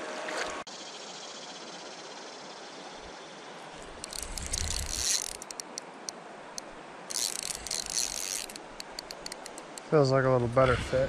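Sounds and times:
fishing reel whirring and clicking: 0:04.0 - 0:05.8, 0:06.5 - 0:09.9.

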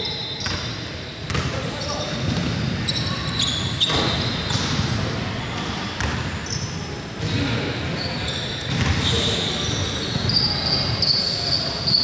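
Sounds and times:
sneakers squeaking on court: 0:00.0 - 0:12.0
basketball bouncing on wooden floor: 0:06.0 - 0:06.2.

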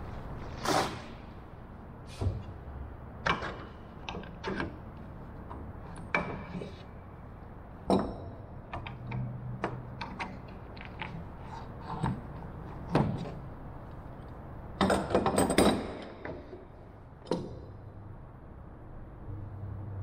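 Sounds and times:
clicks and knocks of clamps: 0:03.2 - 0:06.9, 0:07.8 - 0:14.0, 0:14.8 - 0:17.8.

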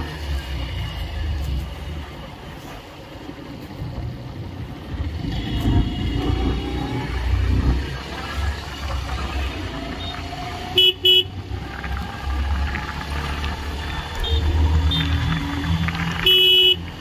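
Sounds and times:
motorcycle engine rumble: 0:00.0 - 0:17.0
motorcycle horn beeps: 0:05.2 - 0:06.7, 0:10.8 - 0:11.3, 0:14.0 - 0:15.2, 0:16.2 - 0:17.0.

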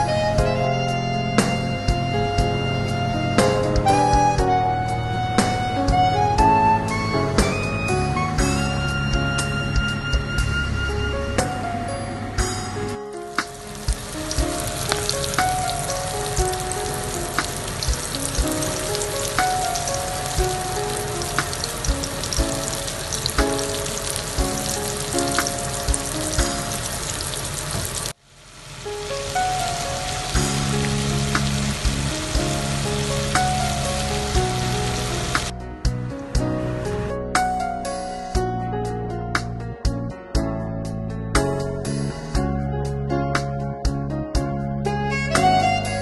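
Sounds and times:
background music: 0:00.0 - 0:27.7, 0:28.9 - 0:46.0
chicken deep-frying in oil: 0:13.3 - 0:35.5.

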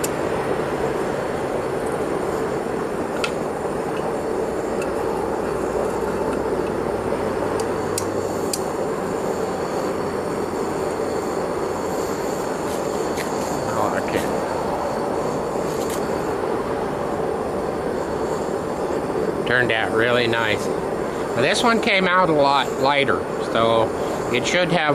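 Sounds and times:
furnace burner running: 0:00.0 - 0:24.9.

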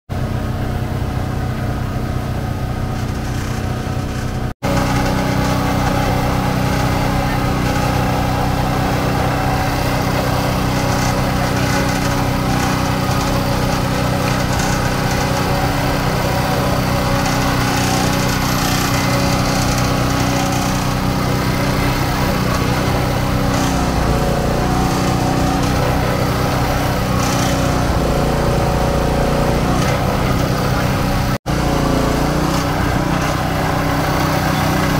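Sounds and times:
engine-driven juice press running: 0:00.1 - 0:34.9
street traffic with motorbikes: 0:00.1 - 0:34.9.

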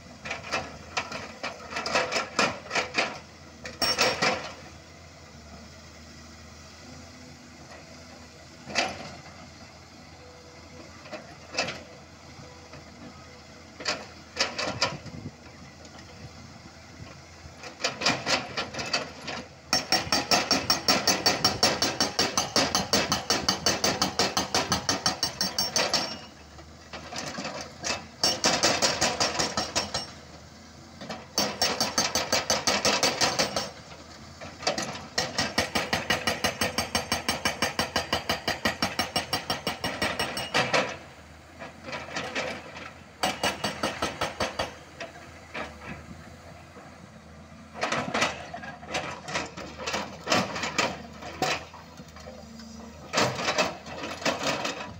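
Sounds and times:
excavator engine running: 0:00.0 - 0:54.9
hydraulic rock breaker hammering: 0:01.8 - 0:04.6, 0:17.9 - 0:26.4, 0:28.2 - 0:30.2, 0:31.3 - 0:33.9, 0:34.7 - 0:41.0, 0:42.0 - 0:44.8.

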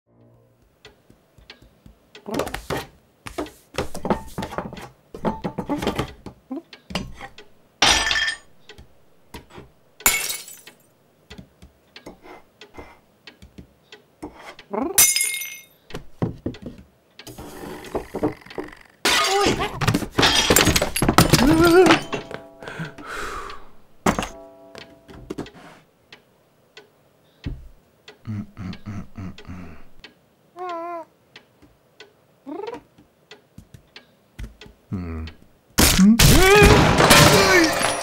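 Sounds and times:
ornaments knocking and clinking: 0:03.8 - 0:11.4, 0:15.0 - 0:16.7, 0:19.1 - 0:23.0, 0:23.8 - 0:25.5, 0:36.8 - 0:38.0
glass and china shattering: 0:07.8 - 0:08.5, 0:10.0 - 0:10.8, 0:15.0 - 0:15.8, 0:20.2 - 0:22.6, 0:36.6 - 0:38.0.

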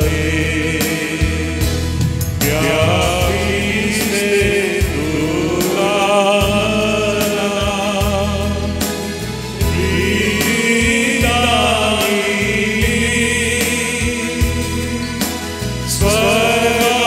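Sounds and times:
man singing a hymn: 0:00.0 - 0:17.0
sustained instrumental accompaniment: 0:00.0 - 0:17.0.

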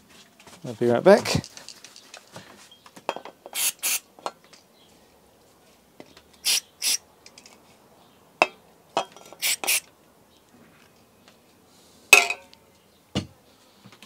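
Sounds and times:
aerosol spray hissing bursts: 0:03.6 - 0:04.1, 0:06.4 - 0:07.0, 0:09.4 - 0:09.9.

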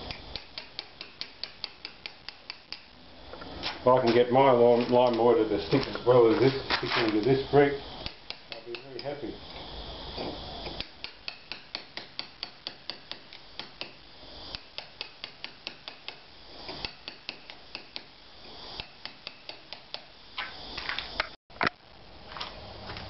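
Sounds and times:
hammer tapping chisel on mortar: 0:00.1 - 0:02.8, 0:08.0 - 0:09.2, 0:10.7 - 0:14.0.

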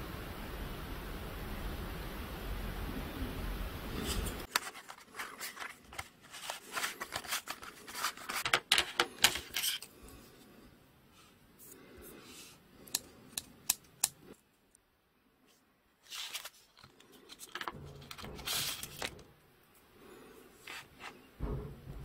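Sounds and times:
plastic sleeve rustling: 0:04.0 - 0:10.1, 0:16.0 - 0:19.3.

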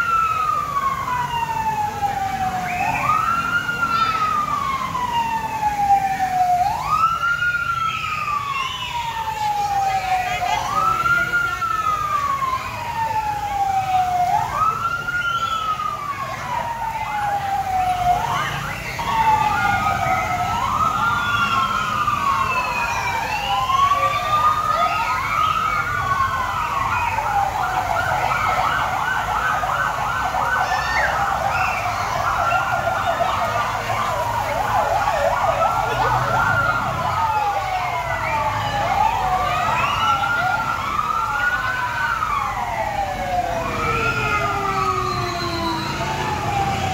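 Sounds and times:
fire truck siren wailing: 0:00.0 - 0:46.9.

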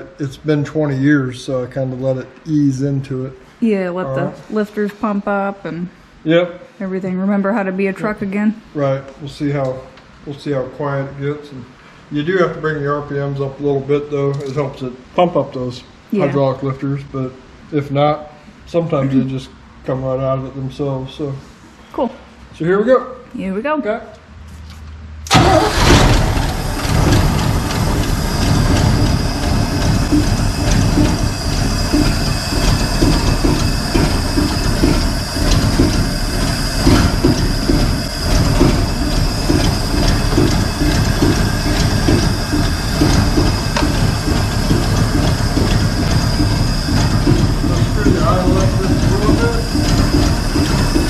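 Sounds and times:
engine starting and idling: 0:25.3 - 0:51.0.

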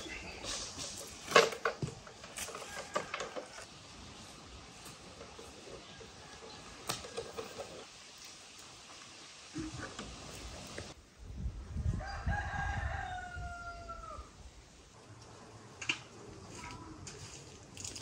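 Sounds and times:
rooster crowing: 0:12.0 - 0:14.3.

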